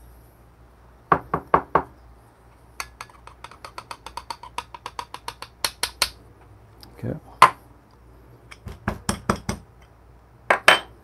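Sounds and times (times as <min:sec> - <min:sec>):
metal cup knocking: 0:02.8 - 0:06.0.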